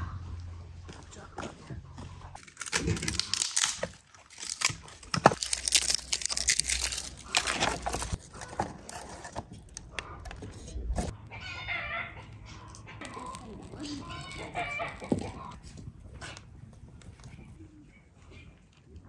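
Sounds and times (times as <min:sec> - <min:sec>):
dry wood cracking and splintering: 0:02.4 - 0:11.2, 0:13.0 - 0:17.4.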